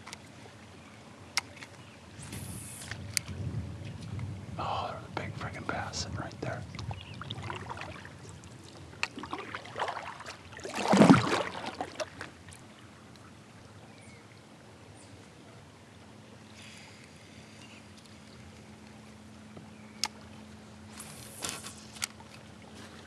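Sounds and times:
faint steady hum: 0.0s - 23.0s
water splashing around kayak: 6.4s - 13.8s, 15.6s - 23.0s
loud splash: 9.2s - 12.2s.

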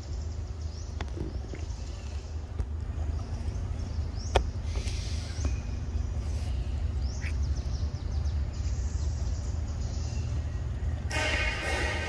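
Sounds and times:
steady low rumble: 0.0s - 12.0s
faint bird chirps: 3.2s - 10.9s.

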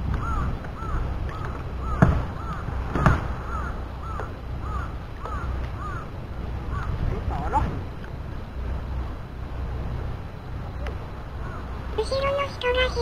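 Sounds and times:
water: 0.0s - 13.0s
wind: 0.0s - 13.0s
arched bird calls: 0.1s - 7.0s, 10.5s - 13.0s
sharp knocks: 1.4s - 3.3s.

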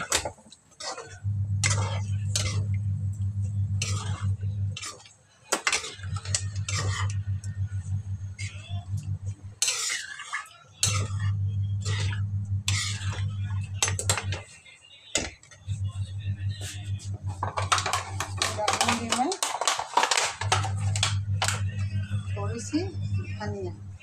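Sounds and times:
metal ladle scraping a pan: 0.0s - 2.8s, 3.6s - 7.3s, 9.4s - 14.5s
steady low hum: 1.2s - 4.9s, 5.9s - 9.7s, 10.8s - 14.4s, 15.6s - 19.1s, 20.4s - 24.0s.

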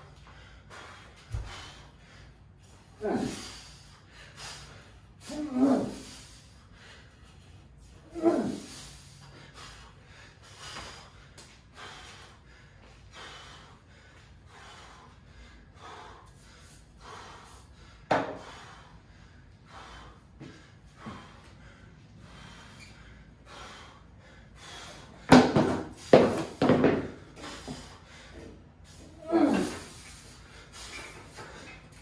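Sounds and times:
man breathing heavily: 0.0s - 32.0s
loud gasping exhales: 28.9s - 31.8s.

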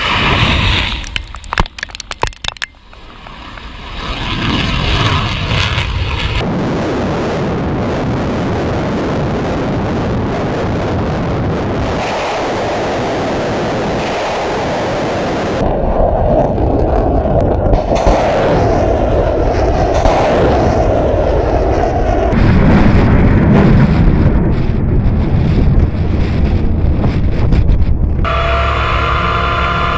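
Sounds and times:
rockets roaring away: 0.0s - 1.2s, 2.8s - 29.9s
wind buffeting microphone: 3.0s - 28.3s
missile launch blast crackling: 17.6s - 27.1s.

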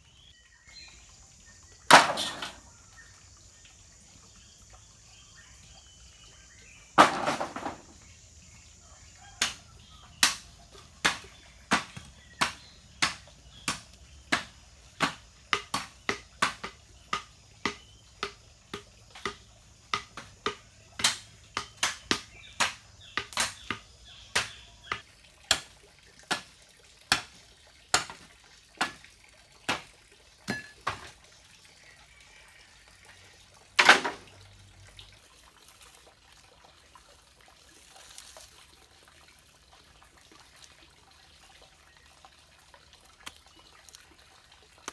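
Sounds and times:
sharp knocks: 11.0s - 25.7s.

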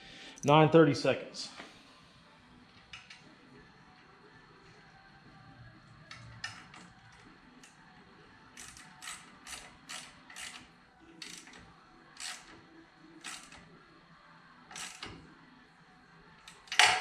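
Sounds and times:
ratchet wrench clicking: 8.6s - 11.6s, 12.2s - 12.6s, 13.2s - 13.7s, 14.7s - 15.2s.

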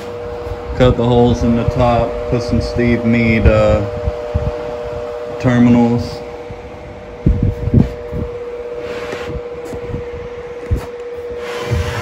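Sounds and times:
electric fan humming: 0.0s - 12.0s
dull low thumps: 3.3s - 5.2s, 6.2s - 12.0s.

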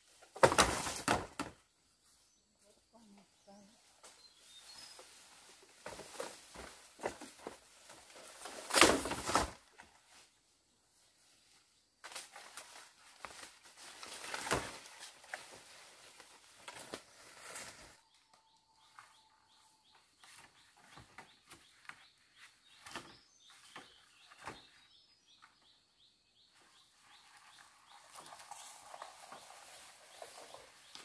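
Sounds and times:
bamboo poles handled: 0.1s - 1.6s, 4.0s - 10.4s, 11.0s - 18.3s, 20.0s - 24.8s
dry leaves rustling and crackling: 12.1s - 18.0s, 27.6s - 31.0s.

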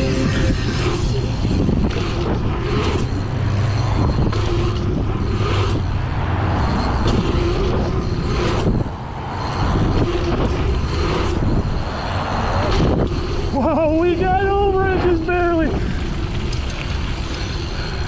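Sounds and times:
wind rushing over microphone: 0.0s - 18.0s
bike tyres rolling on dirt: 15.3s - 18.0s.

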